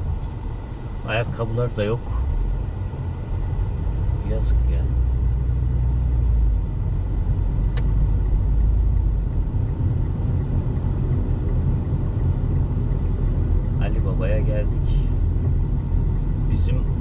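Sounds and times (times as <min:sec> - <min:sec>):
car engine and tyres rumbling: 0:00.0 - 0:17.0
sharp click: 0:07.7 - 0:08.0.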